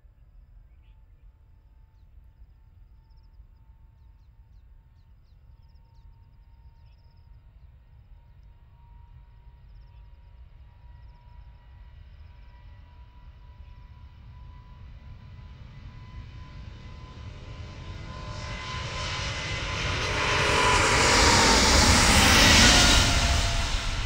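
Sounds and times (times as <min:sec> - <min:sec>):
distant jet engines whining: 0:04.7 - 0:24.0
low rumble: 0:18.6 - 0:24.0.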